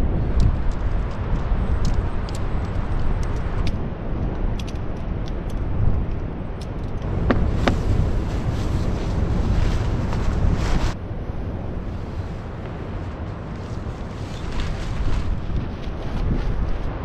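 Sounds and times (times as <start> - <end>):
wind on microphone: 0.0 - 17.0
gear clicking and rustling: 0.4 - 11.0, 12.6 - 17.0
ocean surf rumble: 7.0 - 17.0.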